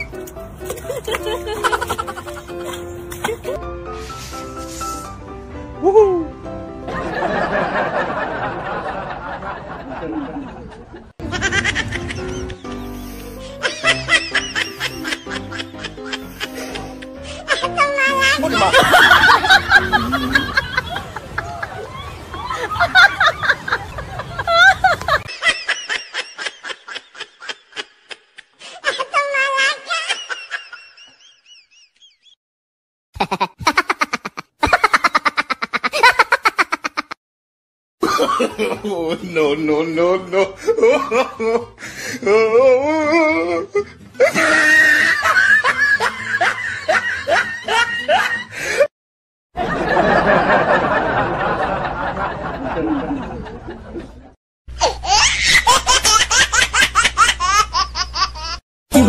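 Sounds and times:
high-pitched giggling: 33.2s - 37.2s.

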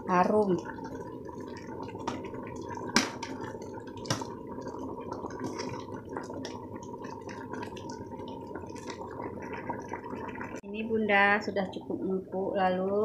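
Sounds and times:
curry bubbling in a pot: 0.0s - 13.0s.

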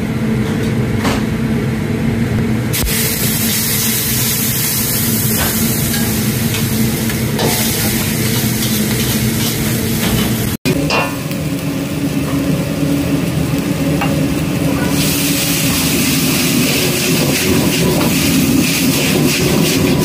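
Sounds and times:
gas burner low rumble: 0.0s - 20.0s
noodles sizzling in wok: 2.7s - 20.0s.

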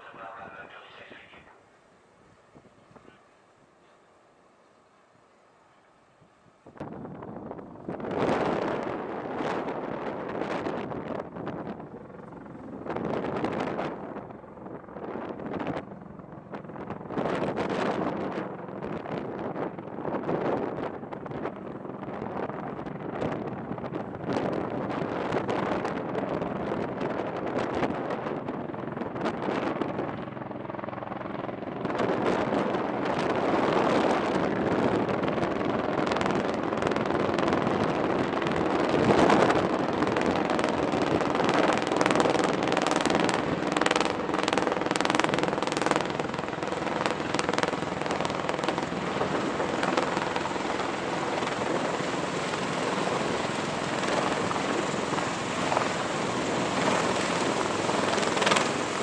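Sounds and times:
heavy rotor noise: 0.0s - 1.7s, 31.2s - 59.0s.

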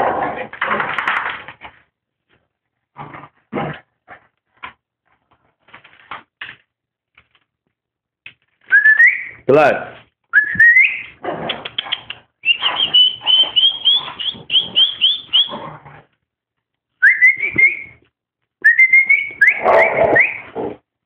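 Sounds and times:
dog whining: 10.4s - 15.8s, 18.7s - 20.6s.

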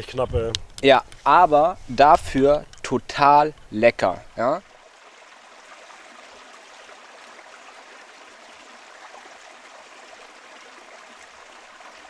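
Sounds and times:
stream flowing over stones: 1.3s - 12.0s.

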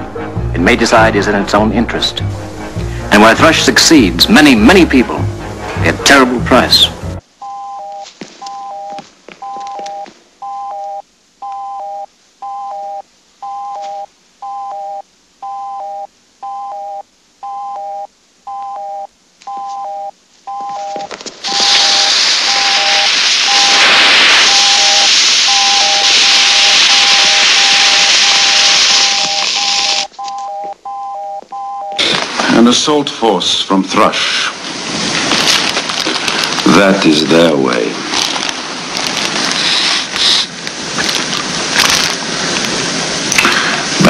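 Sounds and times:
loud steady hiss: 0.0s - 7.4s, 21.2s - 30.2s, 32.0s - 44.0s.

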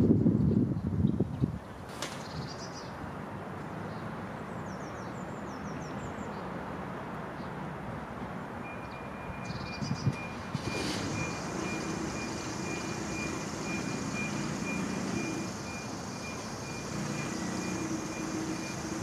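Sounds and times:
distant traffic hum: 0.0s - 19.0s
bird chirps: 8.7s - 10.5s.

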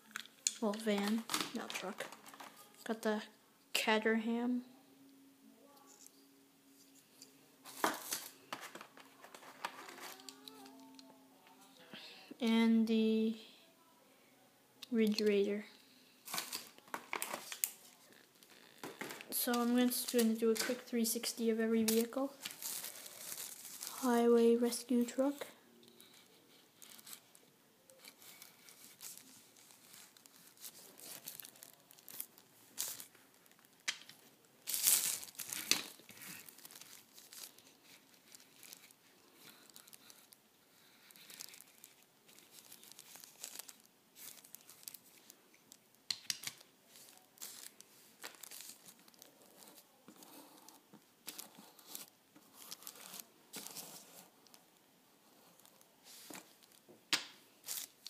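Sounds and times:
toy cars handled on plastic: 0.4s - 2.9s, 7.7s - 11.1s, 16.2s - 20.9s, 21.7s - 25.4s, 26.0s - 54.6s, 55.5s - 56.9s, 57.6s - 58.0s
plastic bag crinkling and rustling: 0.4s - 3.0s, 7.6s - 11.0s, 16.2s - 54.8s, 55.4s - 56.9s, 57.5s - 58.0s.

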